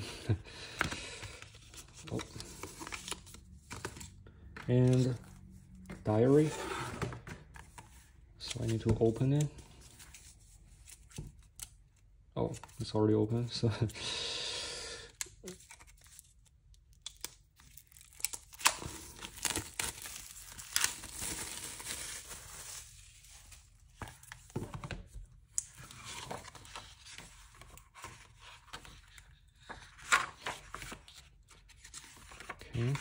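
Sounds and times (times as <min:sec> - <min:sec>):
packaging crinkling: 0:17.1 - 0:23.2.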